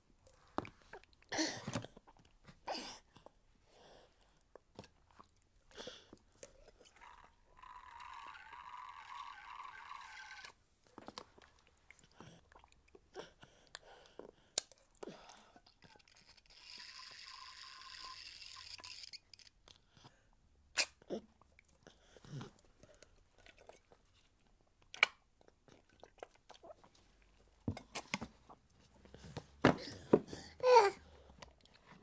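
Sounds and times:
toddler mouth noises: 30.4s - 31.0s.

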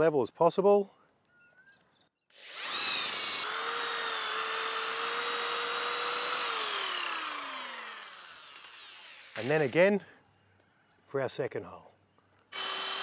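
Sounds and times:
drill boring through wood: 2.3s - 9.8s, 12.5s - 13.0s.

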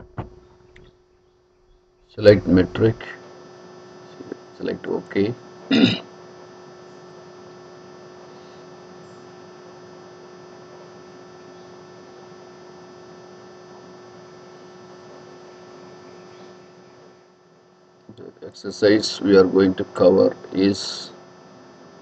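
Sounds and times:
electrical hum: 0.0s - 22.0s.

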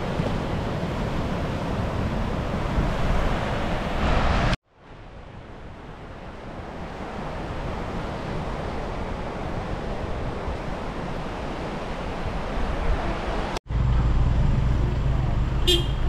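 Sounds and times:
surf washing onto beach: 0.0s - 4.6s.

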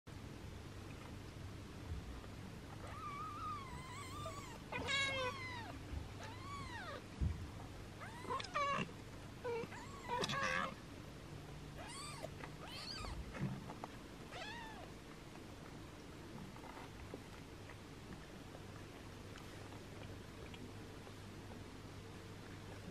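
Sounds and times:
kitten mewing: 2.8s - 7.0s, 8.0s - 10.8s.

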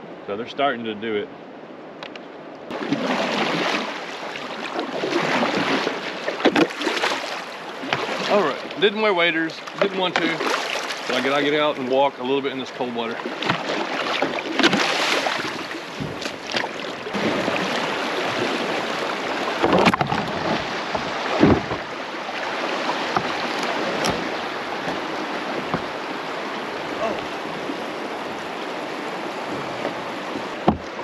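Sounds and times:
creek water rushing: 2.7s - 31.0s
wading splashes: 2.7s - 31.0s
short knocks: 15.9s - 16.6s, 23.1s - 26.0s.

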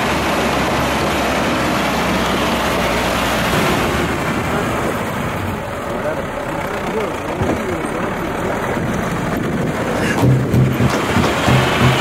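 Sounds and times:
jeep engine: 0.0s - 12.0s
wind: 0.0s - 12.0s
tyres on gravel: 3.5s - 12.0s.

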